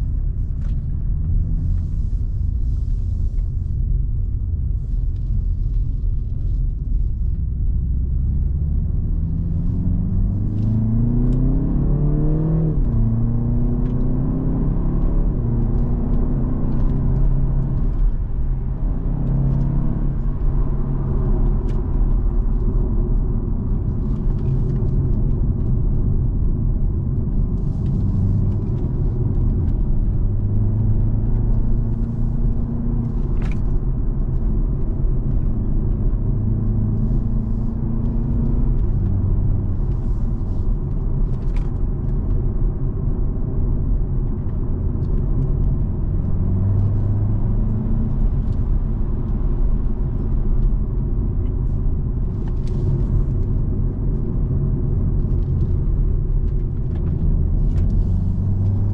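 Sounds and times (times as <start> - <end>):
car engine and road rumble: 0.0 - 58.9.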